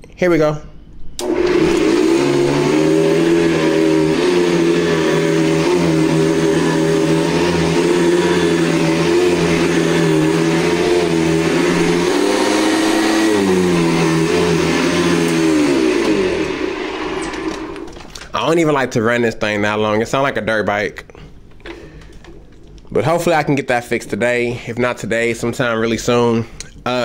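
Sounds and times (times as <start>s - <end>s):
vacuum cleaner switch click: 1.2s - 1.9s
vacuum cleaner motor drone: 1.2s - 18.2s.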